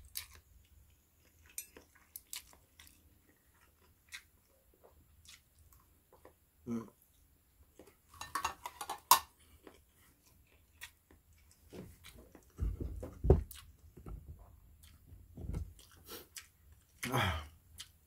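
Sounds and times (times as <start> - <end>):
dull low thumps: 12.6 - 15.8.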